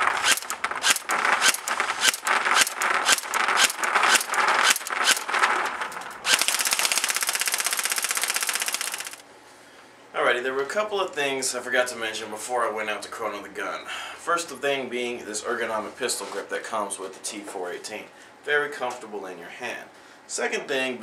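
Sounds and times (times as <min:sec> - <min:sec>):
airsoft rifle firing shots: 0:00.0 - 0:09.2
rifle bolt cycling: 0:06.3 - 0:09.2.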